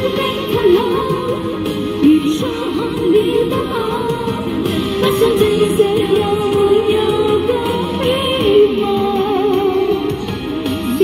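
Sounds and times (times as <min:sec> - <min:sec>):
recorded backing music: 0:00.0 - 0:11.0
woman singing into microphone: 0:00.0 - 0:11.0.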